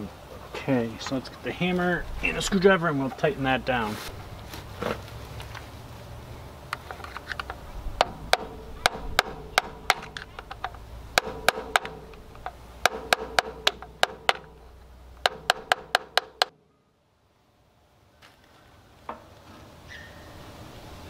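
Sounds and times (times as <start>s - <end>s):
hammer tapping metal screwdriver: 7.4s - 14.6s, 15.2s - 16.5s.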